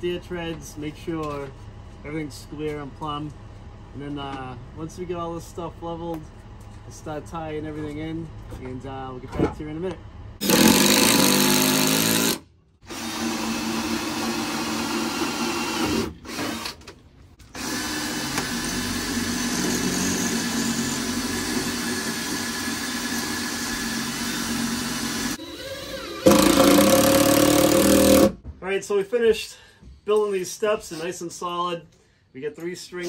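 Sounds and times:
cordless drill driving screws: 0:10.4 - 0:16.9, 0:17.5 - 0:28.4.

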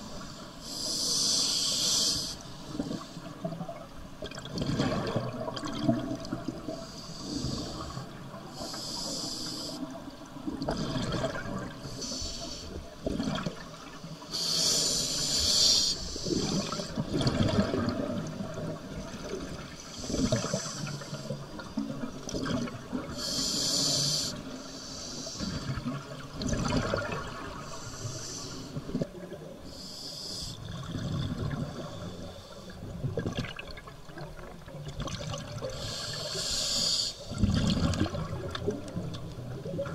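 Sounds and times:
regulator hissing inhalation: 0:00.7 - 0:02.4, 0:08.6 - 0:09.8, 0:14.3 - 0:16.7, 0:23.2 - 0:25.6, 0:27.7 - 0:28.8, 0:35.8 - 0:37.3
exhaled bubbles gurgling: 0:02.6 - 0:09.2, 0:09.8 - 0:12.0, 0:12.9 - 0:14.4, 0:16.1 - 0:24.7, 0:25.4 - 0:29.7, 0:30.6 - 0:39.9.

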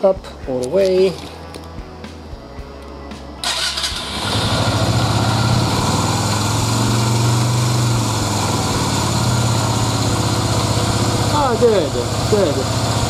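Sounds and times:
motorcycle starter spinning: 0:03.4 - 0:06.5
motorcycle engine idling: 0:03.4 - 0:13.0.

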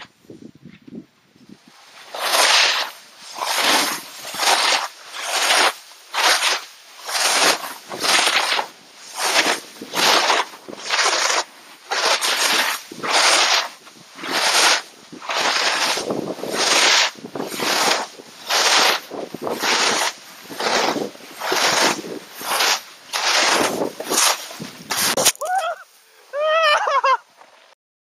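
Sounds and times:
snowboard scraping through snow: 0:01.5 - 0:26.5.

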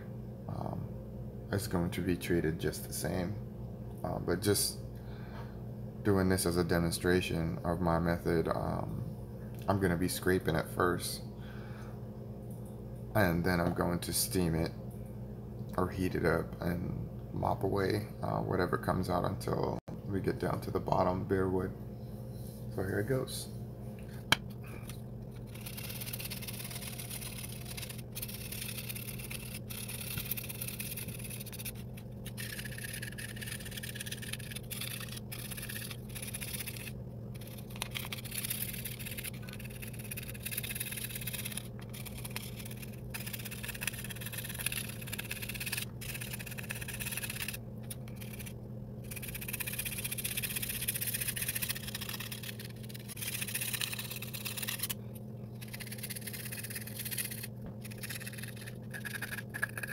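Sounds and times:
metal scraper rasping on wood: 0:25.5 - 0:47.6.

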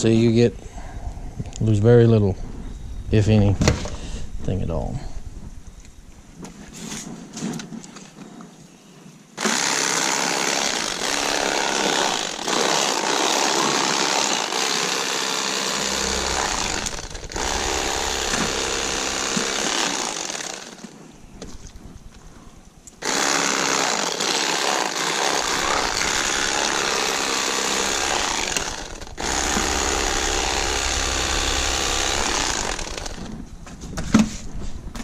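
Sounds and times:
electric fillet knife buzzing: 0:09.4 - 0:20.9, 0:23.0 - 0:33.4.

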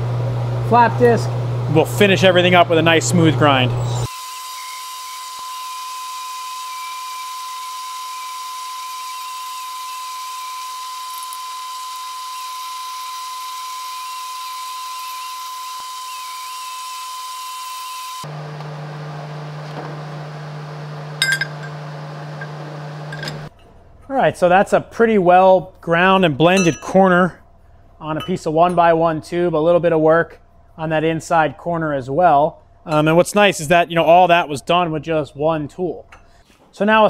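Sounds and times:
grinder whining: 0:00.6 - 0:23.5
low steady hum: 0:20.6 - 0:34.6
sharp metal clink: 0:21.2 - 0:21.8, 0:26.5 - 0:27.2.

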